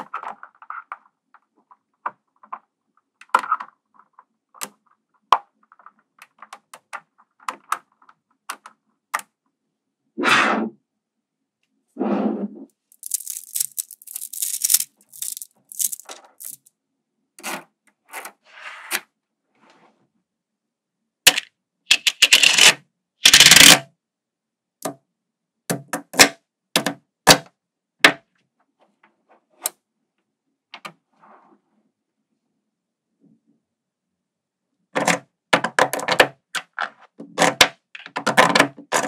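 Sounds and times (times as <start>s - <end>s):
magnetic balls clicking: 12.9s - 16.6s.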